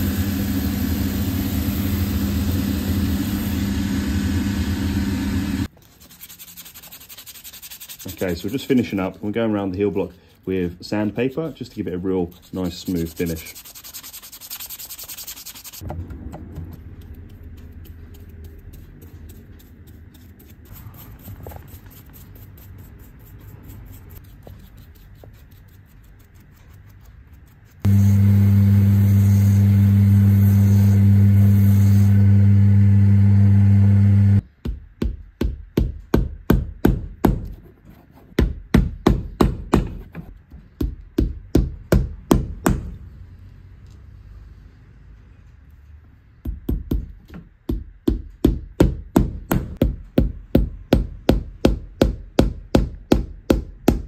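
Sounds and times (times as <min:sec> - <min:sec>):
sandpaper scratching leather: 0:05.6 - 0:15.8, 0:16.8 - 0:27.9
low hum: 0:27.9 - 0:34.4.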